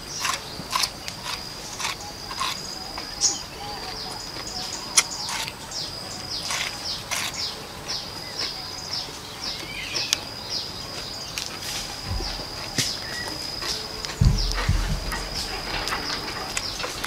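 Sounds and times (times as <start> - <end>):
wet crunching chewing: 0.0 - 3.4, 4.2 - 9.0.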